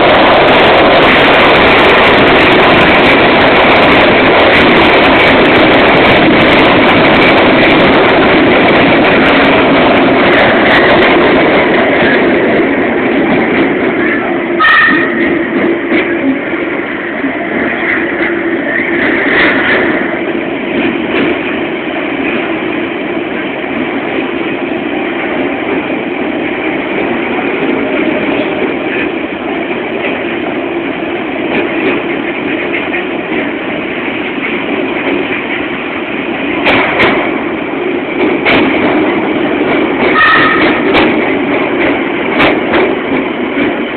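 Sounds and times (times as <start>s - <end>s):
train wheel and rail rumble: 0.0s - 43.9s
sharp clacks: 36.6s - 37.4s, 38.2s - 43.8s.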